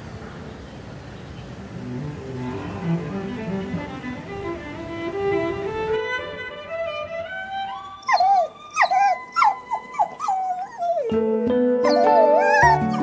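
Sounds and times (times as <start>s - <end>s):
soft instrumental music: 1.9s - 13.0s
animal yelping calls: 7.8s - 11.2s, 11.8s - 13.0s.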